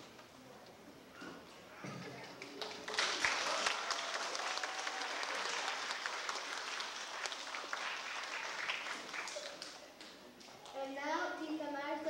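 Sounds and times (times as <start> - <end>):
audience applauding: 2.4 - 10.8.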